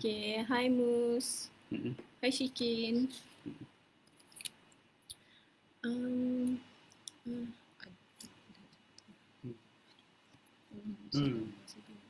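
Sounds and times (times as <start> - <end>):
person humming: 1.7 - 2.0, 10.8 - 11.5.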